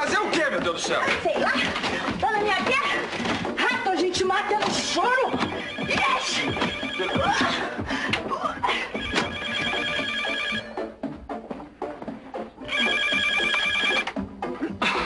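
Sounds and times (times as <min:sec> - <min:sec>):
telephone ringing: 0:05.2 - 0:07.4, 0:08.9 - 0:10.8, 0:12.6 - 0:14.2.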